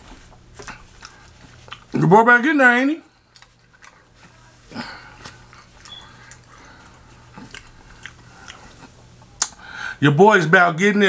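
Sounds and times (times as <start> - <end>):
person chewing: 0.0 - 2.0, 3.1 - 9.6.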